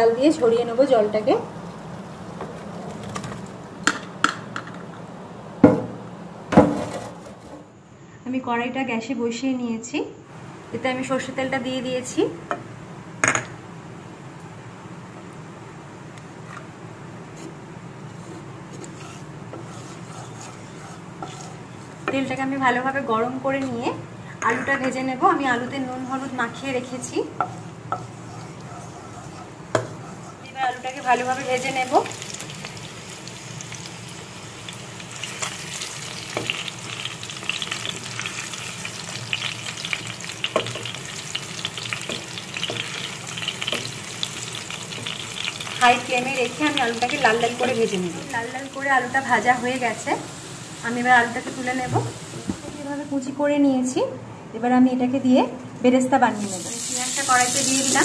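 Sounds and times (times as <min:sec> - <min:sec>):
steady hiss and low hum: 0:00.0 - 0:58.0
spatula tapping and scraping: 0:17.3 - 0:22.4, 0:24.4 - 0:25.0, 0:25.6 - 0:30.6, 0:41.7 - 0:44.3
potatoes sizzling in oil: 0:29.4 - 0:53.3, 0:56.3 - 0:58.0.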